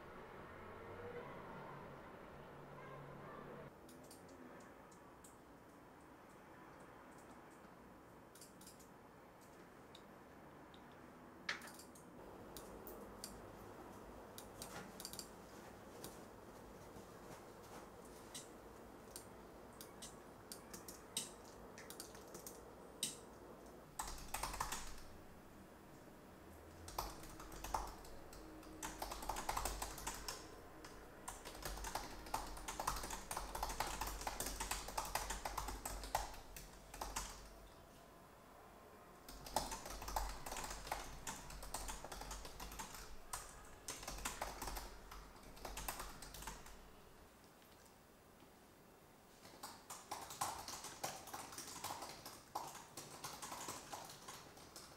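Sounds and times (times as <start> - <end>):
computer mouse clicks: 3.8 - 5.4, 8.3 - 10.1, 11.5 - 13.4, 14.4 - 15.3, 18.3 - 18.5, 19.1 - 25.1, 26.9 - 37.5
fast typing on laptop keyboard: 19.9 - 23.2, 23.9 - 25.4, 26.7 - 37.6, 39.3 - 46.9, 49.4 - 54.9.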